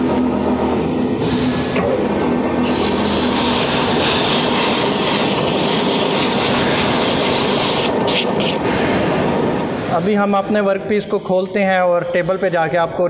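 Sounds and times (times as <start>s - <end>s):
metal lathe humming: 0.0s - 8.6s.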